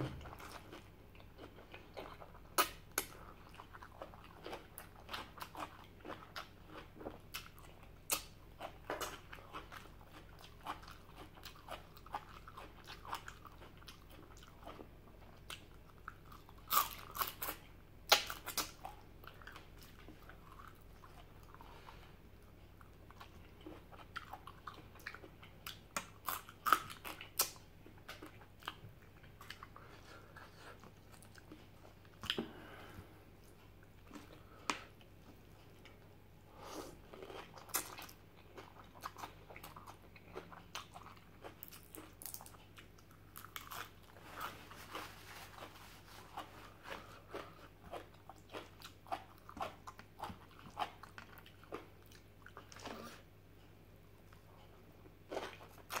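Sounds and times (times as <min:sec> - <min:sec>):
person chewing crunchy food: 0:00.0 - 0:56.0.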